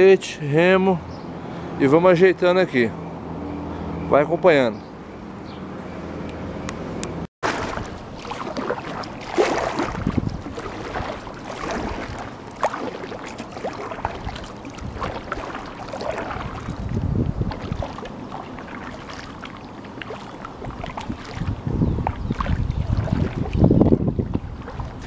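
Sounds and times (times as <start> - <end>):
kayak paddle splashing in water: 7.4 - 25.0.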